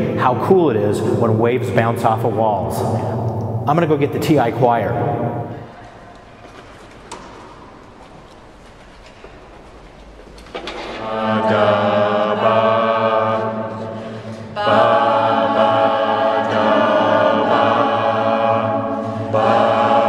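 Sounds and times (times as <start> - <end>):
group singing held chords: 10.8 - 20.0.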